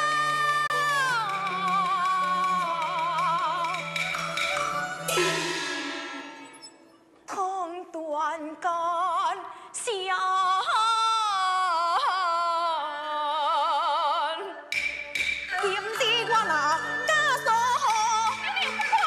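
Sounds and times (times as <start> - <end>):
woman singing opera style: 0.0 - 6.2, 7.3 - 14.7, 15.5 - 19.0
band accompaniment: 2.8 - 6.7
sharp percussion strikes: 3.2 - 7.0, 14.7 - 16.0.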